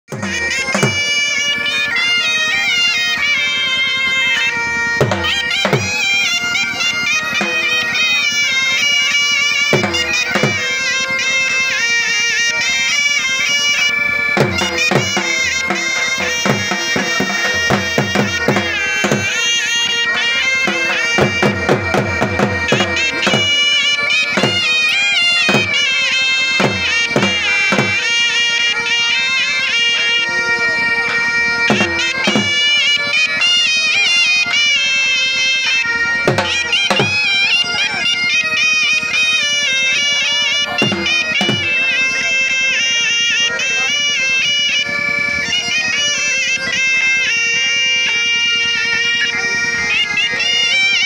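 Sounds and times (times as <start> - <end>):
piping reed melody: 0.0 - 51.0
held drone: 0.1 - 51.0
low drum strokes: 14.4 - 19.4.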